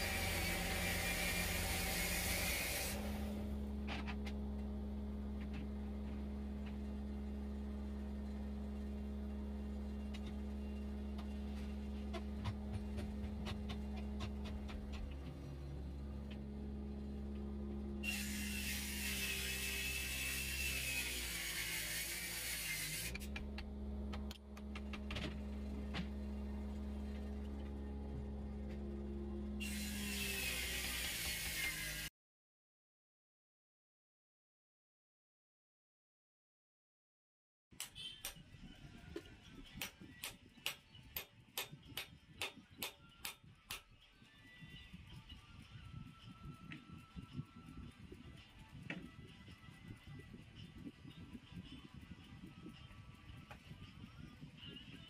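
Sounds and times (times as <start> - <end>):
wood lathe motor hum: 0.0 - 32.1.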